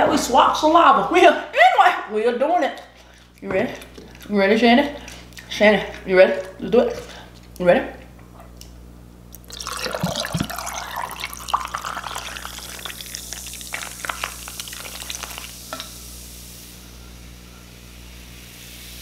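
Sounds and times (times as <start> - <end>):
drink pouring over ice: 9.4 - 15.6
ice cubes clinking: 9.5 - 15.5
fizzing hiss of carbonation: 9.5 - 19.0.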